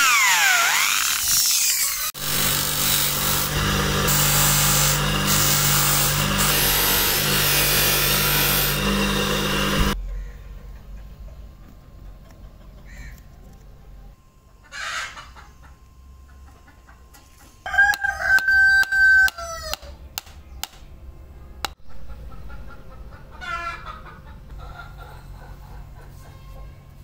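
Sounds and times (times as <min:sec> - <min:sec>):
rooster crowing: 0:17.6 - 0:19.9.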